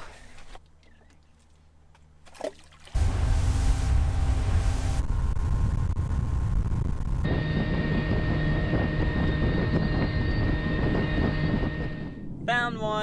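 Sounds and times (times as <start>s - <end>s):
thin high whine: 3.0s - 12.3s.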